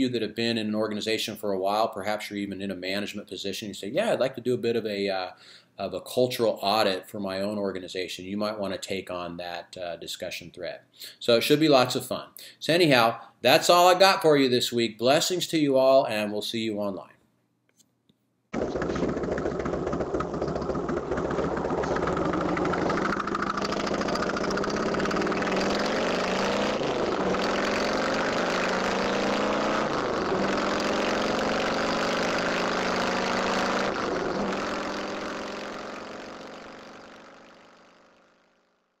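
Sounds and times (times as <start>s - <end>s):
vehicle engine accelerating: 18.6s - 38.6s.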